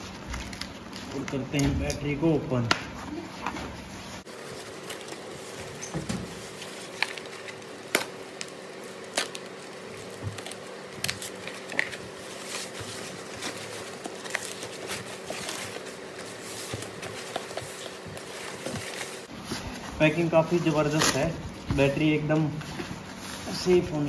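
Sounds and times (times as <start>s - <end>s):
bag and foam rustling: 8.5s - 24.0s.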